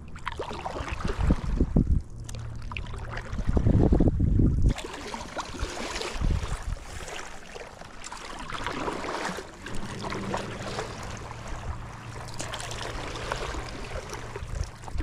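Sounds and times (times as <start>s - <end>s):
low steady hum: 0.0s - 15.0s
paddle splashing water: 4.6s - 15.0s.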